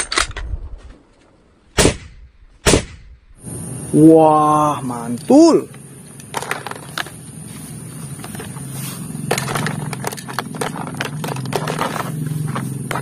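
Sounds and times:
plastic toy guns clattering: 6.2s - 7.1s, 9.3s - 13.0s.

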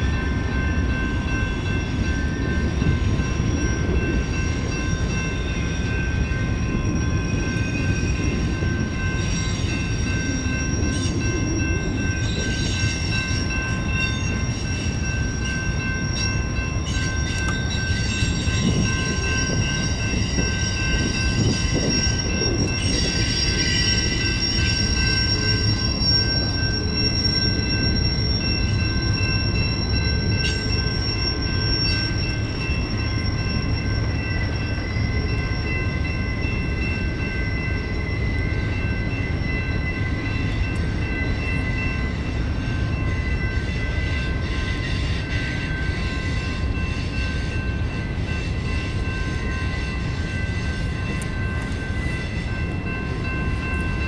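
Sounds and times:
freight train wheels rumbling: 0.0s - 54.0s
high-pitched wheel squeal: 16.1s - 28.6s.

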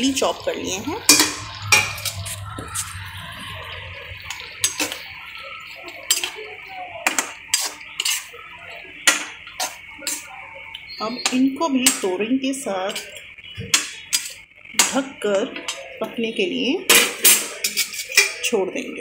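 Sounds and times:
cooking hiss: 0.0s - 19.0s
spoon clinking against pan: 9.0s - 12.2s, 16.9s - 18.5s.

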